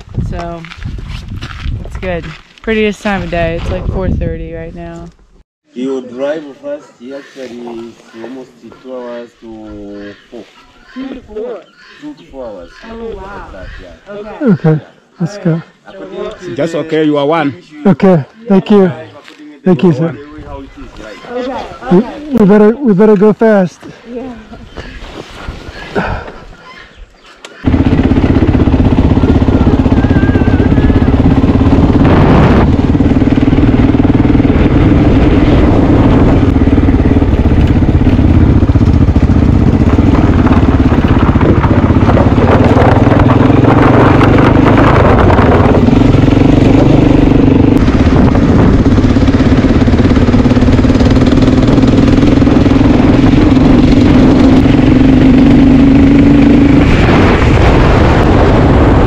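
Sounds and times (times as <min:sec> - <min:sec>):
motorcycle engine running: 0:00.0 - 0:05.4, 0:27.6 - 0:59.0.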